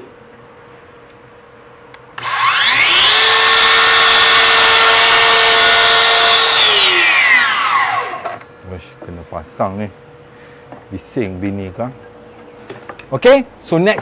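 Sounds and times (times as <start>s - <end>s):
mitre saw motor whining: 2.2s - 8.5s.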